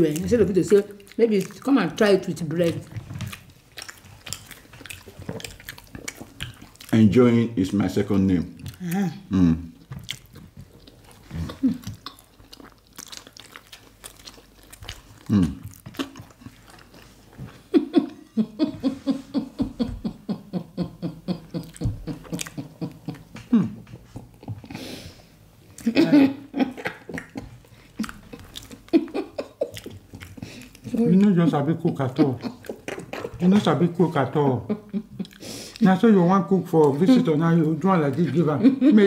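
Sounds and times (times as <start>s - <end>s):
chewing and mouth smacking: 0.0s - 9.2s, 9.8s - 17.6s, 21.6s - 24.8s, 26.7s - 33.8s, 35.1s - 35.8s.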